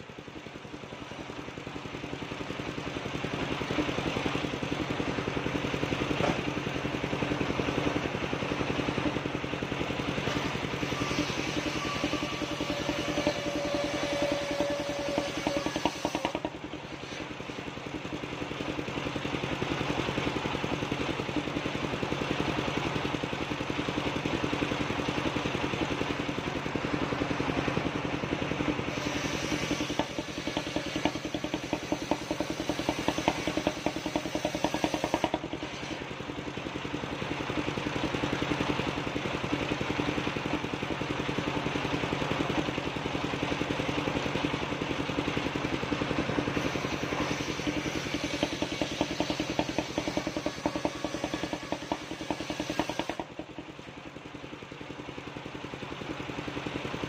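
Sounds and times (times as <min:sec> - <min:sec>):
circular sawmill cutting log: 0:00.0 - 0:57.0
machine rattling: 0:46.4 - 0:53.7.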